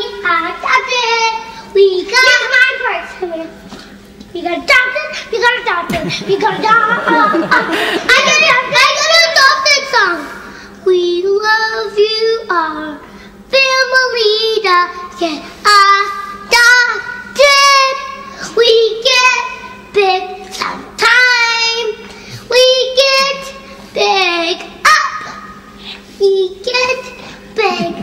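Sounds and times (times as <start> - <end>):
child singing high notes: 22.5 - 25.4.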